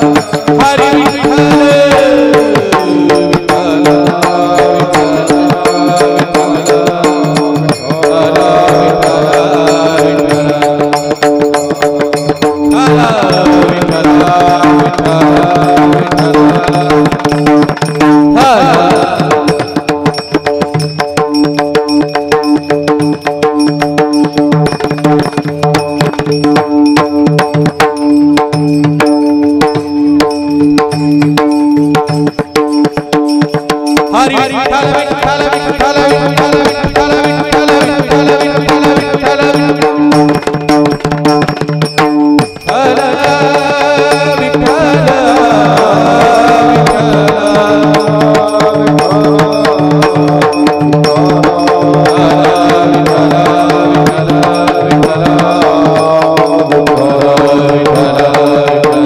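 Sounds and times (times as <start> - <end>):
voices singing: 0.0 - 11.2, 12.2 - 17.3, 18.3 - 20.2, 42.6 - 59.0
drum rhythm: 0.0 - 59.0
hand cymbals: 0.0 - 59.0.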